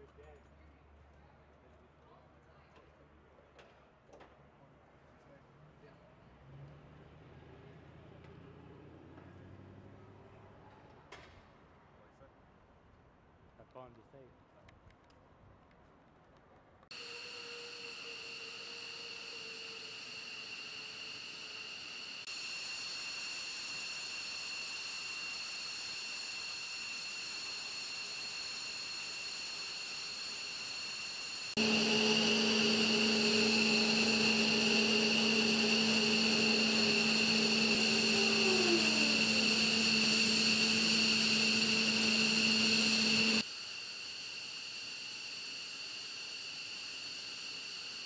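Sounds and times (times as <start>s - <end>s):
jet turbine whine: 16.9s - 48.0s.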